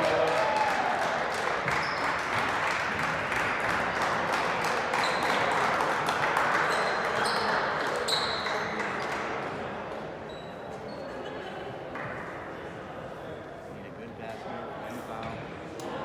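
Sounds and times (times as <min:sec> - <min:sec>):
crowd chatter: 0:00.0 - 0:16.0
sneaker squeaks: 0:01.6 - 0:02.2, 0:05.0 - 0:05.5, 0:06.6 - 0:08.8, 0:10.2 - 0:11.4.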